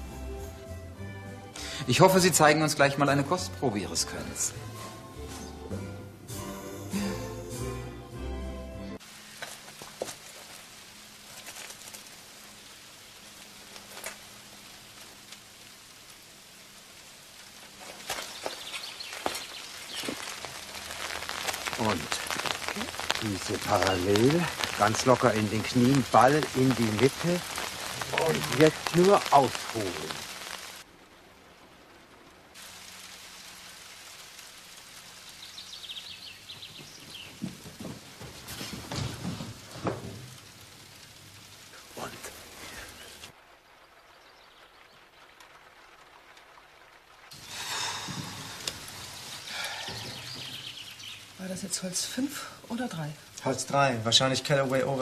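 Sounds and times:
background music: 0.0 - 9.0
faint steady hiss: 0.0 - 55.0.

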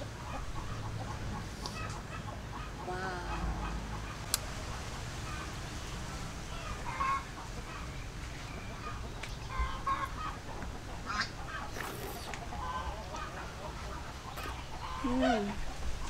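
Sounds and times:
chickens clucking: 0.0 - 16.0.

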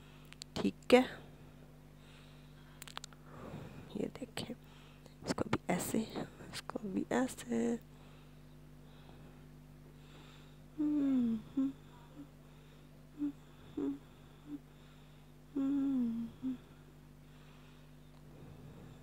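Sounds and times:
low electrical hum: 0.0 - 19.0
woman humming: 10.7 - 12.4, 13.1 - 14.7, 15.5 - 16.8.

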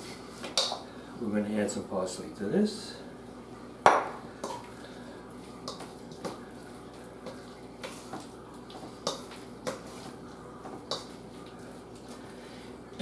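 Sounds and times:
spoon stirring thick mixture: 4.4 - 12.3.

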